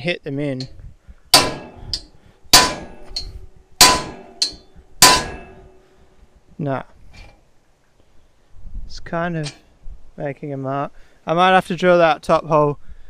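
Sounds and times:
hammer striking metal bolt: 1.4s - 5.8s.

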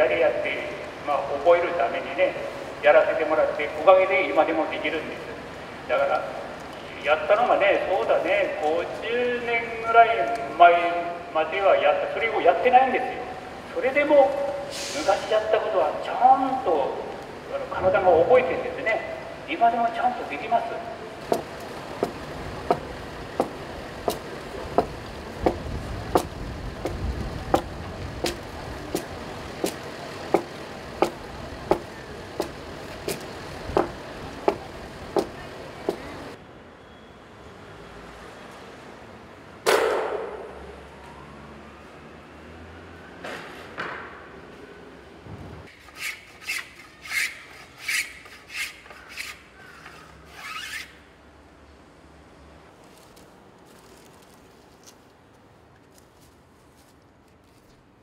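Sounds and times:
adze chopping timber: 21.2s - 36.2s
hand tool scraping wood: 21.2s - 36.2s, 45.7s - 51.0s.

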